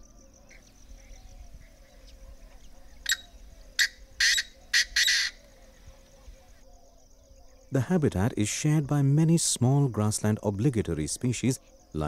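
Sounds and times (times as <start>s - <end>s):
bird harsh calls: 0.4s - 6.6s.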